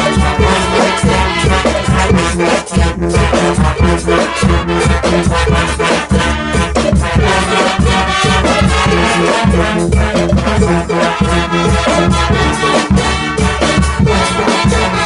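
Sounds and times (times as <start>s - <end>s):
sousaphone: 0.0s - 15.0s
steady drum beat: 0.0s - 15.0s
trombones: 0.0s - 15.0s
trumpets: 0.0s - 15.0s.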